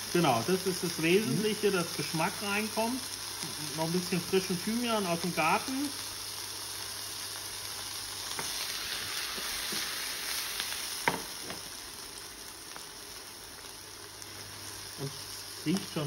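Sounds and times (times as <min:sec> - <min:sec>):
mushrooms sizzling in a frying pan: 0:00.0 - 0:16.0
pan knocking on cooktop: 0:11.0 - 0:11.6.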